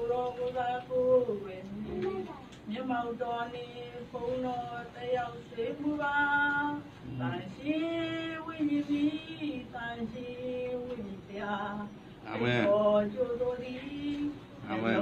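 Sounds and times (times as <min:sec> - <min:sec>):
woman singing slowly: 0:00.0 - 0:12.0.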